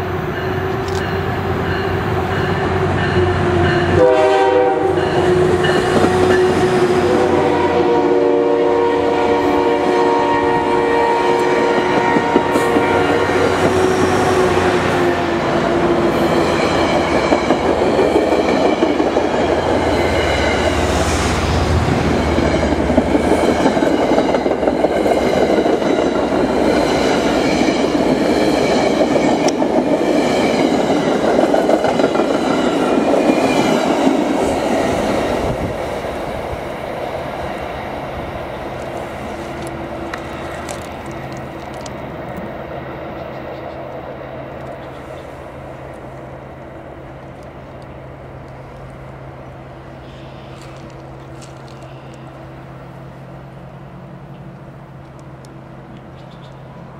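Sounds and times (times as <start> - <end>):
train wheels rumbling: 0.0 - 56.9
clickety-clack over rail joints: 5.0 - 7.1, 16.1 - 20.8, 21.7 - 35.7.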